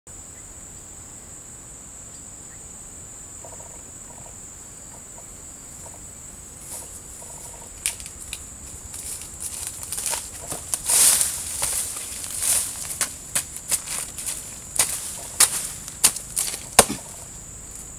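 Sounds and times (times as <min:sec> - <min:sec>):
high-pitched insect drone: 0:00.1 - 0:17.9
dry leaves crackling and rustling: 0:06.6 - 0:17.9
sharp snaps: 0:13.0 - 0:17.2.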